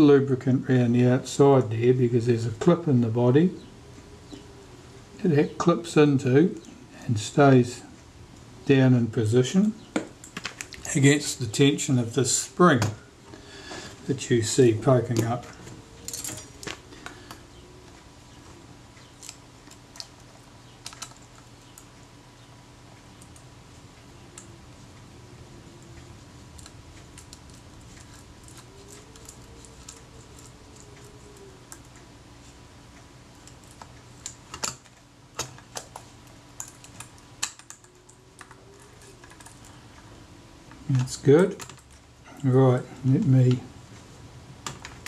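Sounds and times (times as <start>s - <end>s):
small metal parts clicking: 16.0s - 16.8s, 33.4s - 39.8s.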